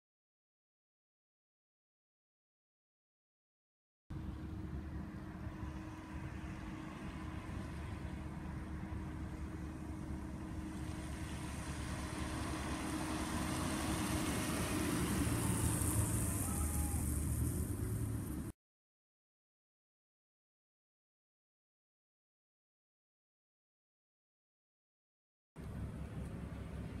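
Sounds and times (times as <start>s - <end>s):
low engine rumble: 4.1s - 18.5s, 25.6s - 27.0s
hiss: 14.6s - 18.0s.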